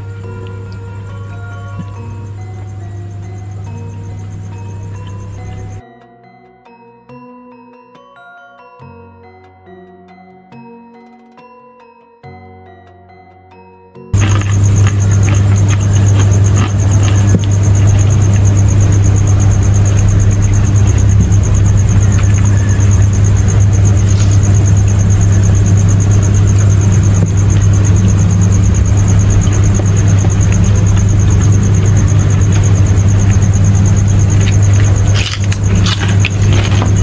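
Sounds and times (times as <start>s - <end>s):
low motor hum: 0.0s - 5.8s, 14.2s - 37.0s.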